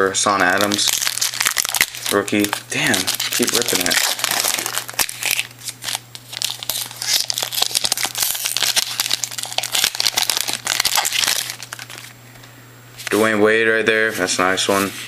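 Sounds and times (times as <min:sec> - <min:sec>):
wrapper crinkling as torn open: 0:00.5 - 0:12.1.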